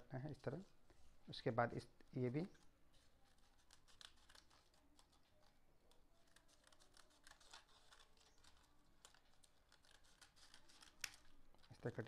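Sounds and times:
scissors snipping paper: 3.0s - 12.0s
paper handling clicks: 3.3s - 12.0s.

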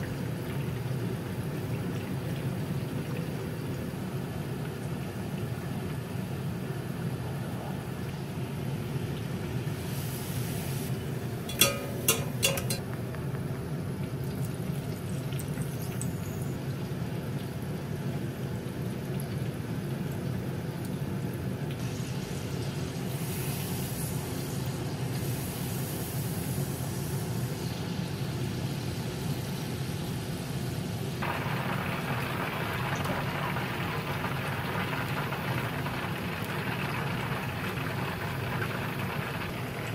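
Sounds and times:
oil bubbling and sizzling: 0.0s - 39.9s
metal clinks: 11.5s - 12.8s.

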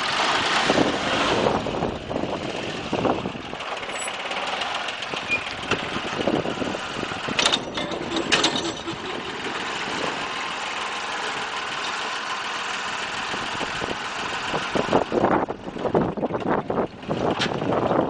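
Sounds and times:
tractor engine running: 0.0s - 18.0s
metallic clanks: 3.9s - 4.2s, 7.3s - 9.8s.

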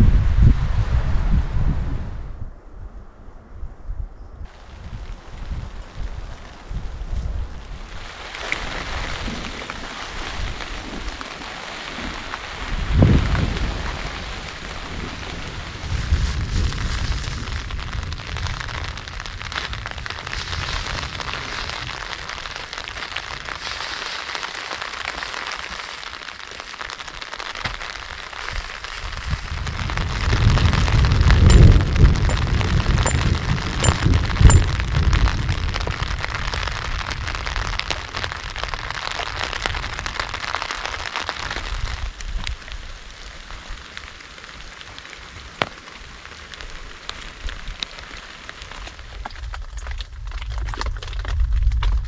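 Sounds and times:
rain on plastic tarp: 4.5s - 52.0s
thunder rumbling: 29.4s - 38.9s.

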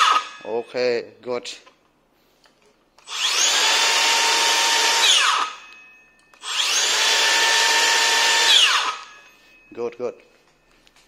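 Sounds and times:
circular saw whine: 3.1s - 5.7s, 6.3s - 9.6s.

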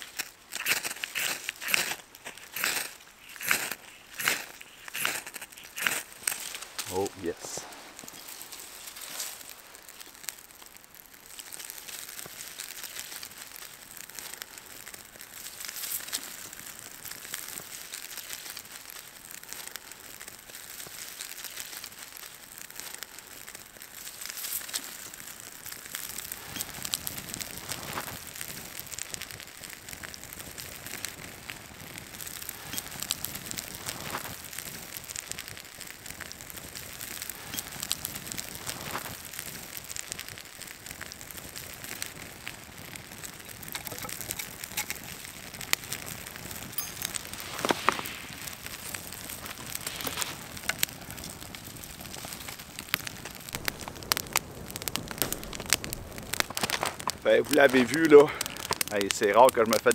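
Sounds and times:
twigs crunching: 0.0s - 14.4s, 43.2s - 59.0s
campfire crackling: 0.0s - 59.9s.

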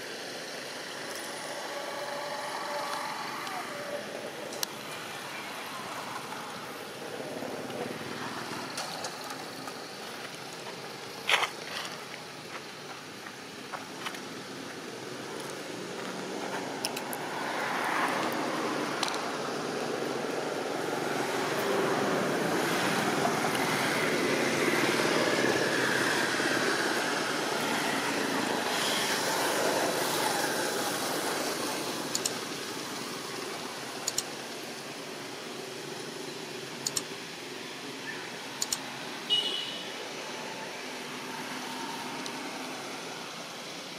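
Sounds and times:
passing road vehicle rushing: 15.7s - 33.9s
faint clicks: 34.0s - 34.3s.

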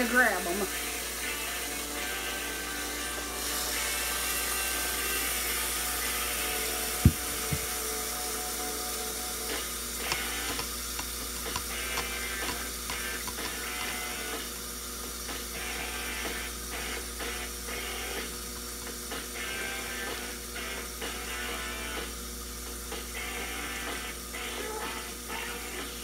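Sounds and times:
burger patties sizzling on grill: 0.0s - 26.0s
sharp knock: 7.1s - 7.7s.

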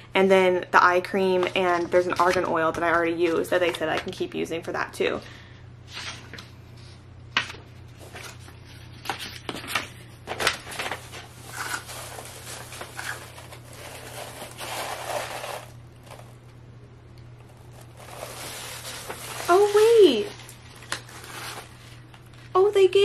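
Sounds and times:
paper crinkling and rustling: 7.4s - 16.5s, 17.4s - 22.5s.

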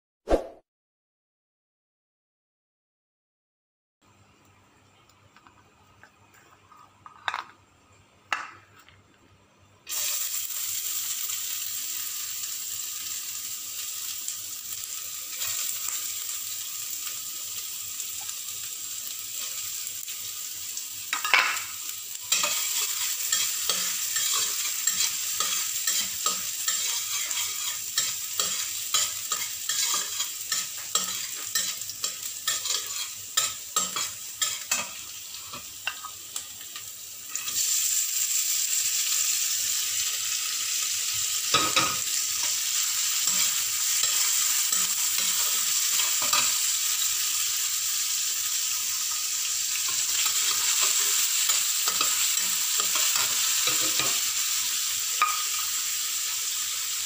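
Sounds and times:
vegetables sizzling in oil: 9.9s - 57.0s
metal spatula scraping wok: 22.3s - 36.1s.

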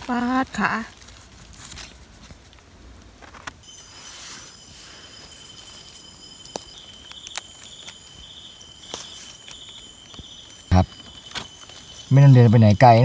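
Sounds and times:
insects trilling: 0.0s - 1.2s, 1.9s - 13.0s
hands rustling leaf litter: 0.0s - 12.7s
pulsing insect chirp: 3.3s - 13.0s.

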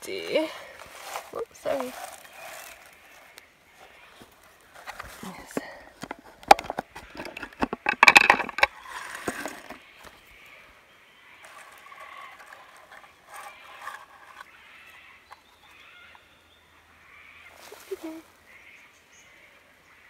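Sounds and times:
rustling: 0.0s - 10.6s, 11.4s - 15.4s, 17.5s - 18.3s.

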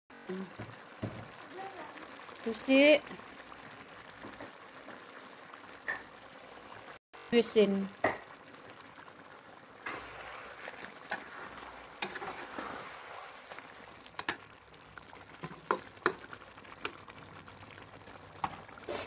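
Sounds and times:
curry simmering and bubbling: 0.1s - 19.0s
metal spatula scraping a pan: 9.8s - 13.5s.

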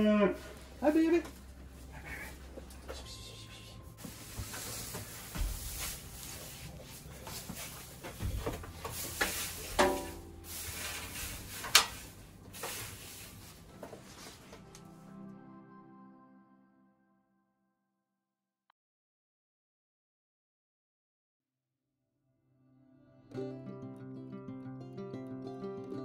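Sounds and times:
soft music: 0.0s - 17.5s, 23.0s - 26.0s
goats rustling on straw: 0.3s - 14.8s.

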